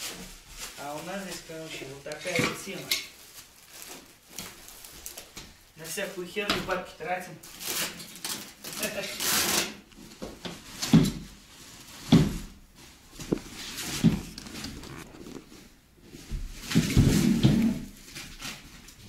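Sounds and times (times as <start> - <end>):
cardboard rustling: 0.0 - 5.6, 7.5 - 19.0.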